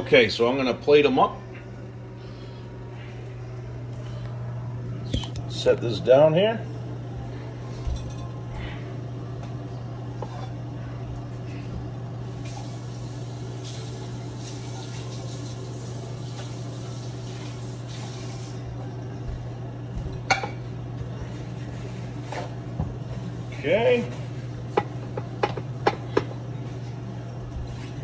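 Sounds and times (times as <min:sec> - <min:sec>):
steady low hum: 0:00.0 - 0:28.0
dishes clattering: 0:07.8 - 0:08.4, 0:20.1 - 0:20.6, 0:24.7 - 0:26.3.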